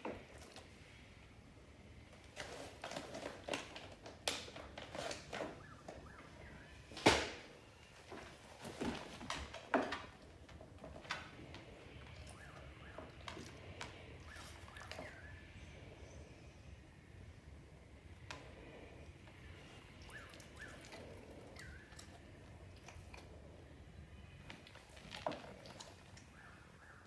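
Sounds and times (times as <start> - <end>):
dog crunching treats: 2.2 - 6.0, 18.3 - 23.6, 24.2 - 26.4.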